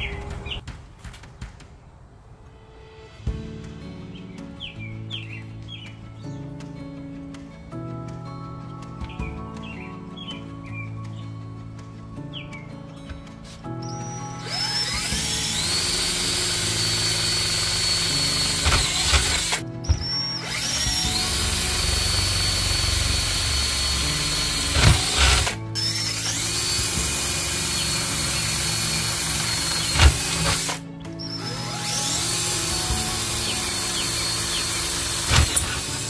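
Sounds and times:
cordless drill whining: 0:14.2 - 0:36.0
drill rattle: 0:14.4 - 0:36.0.

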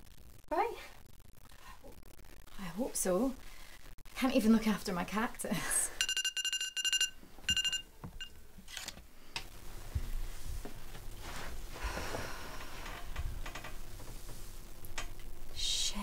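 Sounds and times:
phone alarm beeps: 0:06.0 - 0:08.3
soft rustling: 0:09.6 - 0:14.8.

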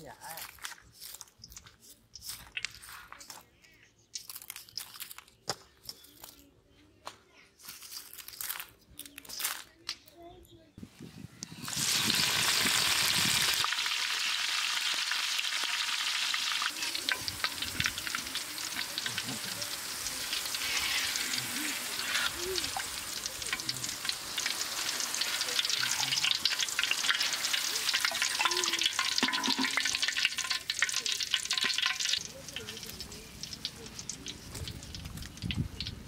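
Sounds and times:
chillies sizzling in hot oil: 0:11.5 - 0:36.0
metal skimmer stirring in oil: 0:13.9 - 0:36.0.

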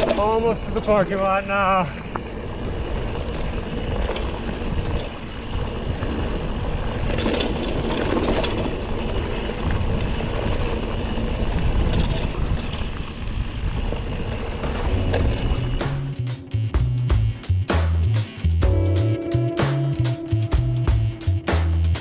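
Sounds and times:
bike rattling: 0:00.0 - 0:18.6
wind rumble on microphone: 0:02.0 - 0:16.1.

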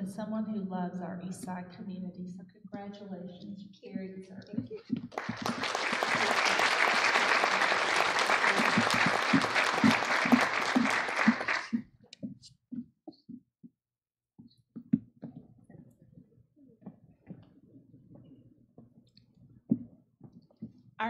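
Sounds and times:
audience applauding: 0:05.1 - 0:11.8.

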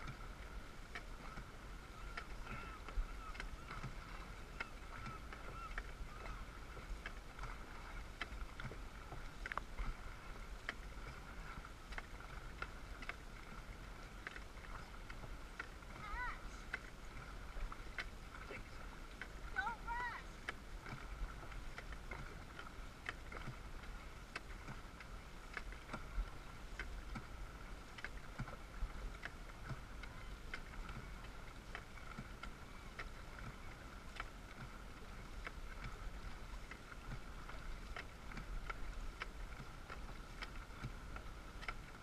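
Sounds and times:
water lapping against boat hull: 0:00.0 - 0:42.0
small clicks and knocks: 0:09.4 - 0:09.7.

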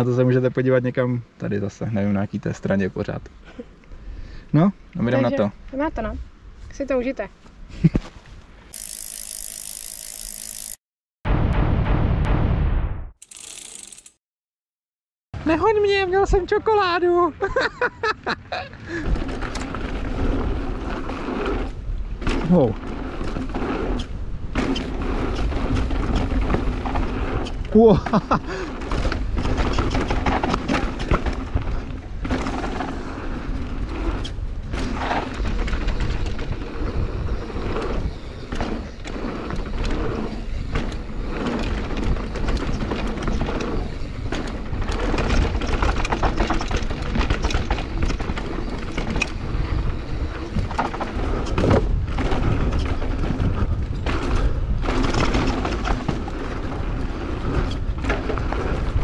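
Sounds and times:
rumble of tyres and wind: 0:02.2 - 0:08.8, 0:15.4 - 0:59.0
bike knocks and rattles: 0:24.5 - 0:59.0.

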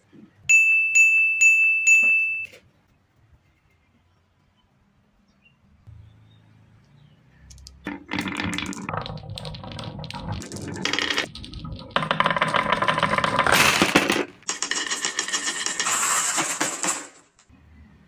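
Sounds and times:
marbles rattling on wooden tracks: 0:07.5 - 0:17.4.

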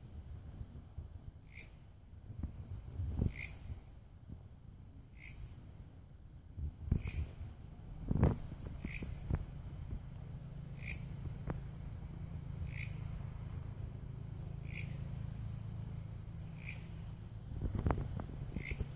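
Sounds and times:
insect chirping: 0:00.0 - 0:18.9
steady low hum: 0:00.0 - 0:18.9.

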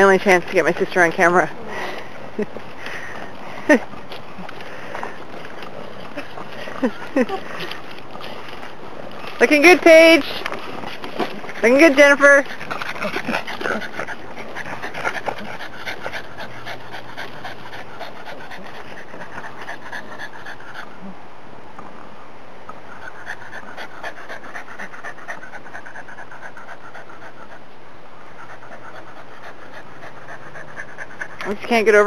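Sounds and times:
dog panting: 0:00.0 - 0:21.1, 0:22.9 - 0:32.0.

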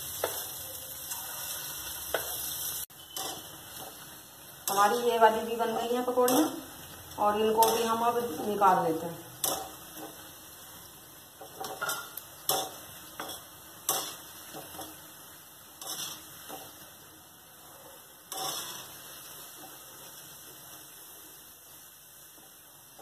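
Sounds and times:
oil sizzling: 0:00.0 - 0:23.0
metal spoon scraping iron pan: 0:03.0 - 0:03.9, 0:07.5 - 0:08.1, 0:15.8 - 0:16.6, 0:18.3 - 0:18.9.

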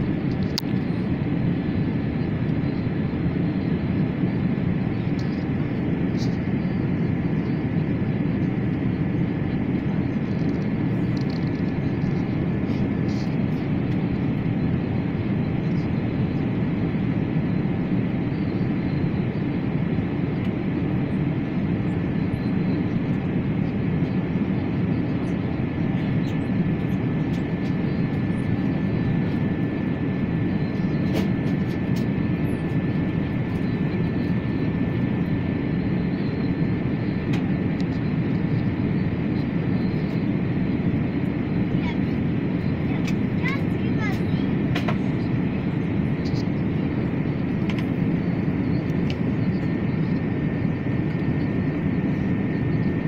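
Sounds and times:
aircraft cabin hum: 0:00.0 - 0:53.0.

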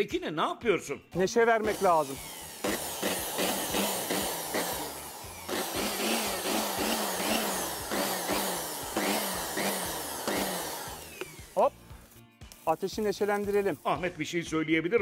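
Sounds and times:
electric blower running: 0:01.6 - 0:12.2.

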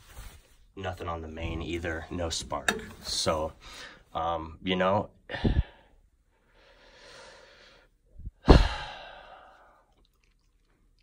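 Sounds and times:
man breathing in: 0:05.3 - 0:09.9
man sighing: 0:08.4 - 0:09.7.

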